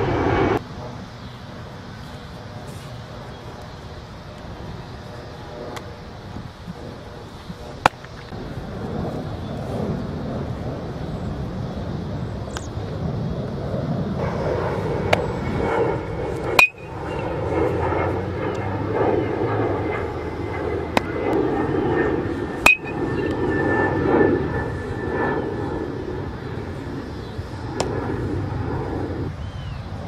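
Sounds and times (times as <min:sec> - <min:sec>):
steady background noise: 0:00.0 - 0:30.0
metal bat hitting baseball: 0:16.6 - 0:16.9, 0:22.7 - 0:23.0.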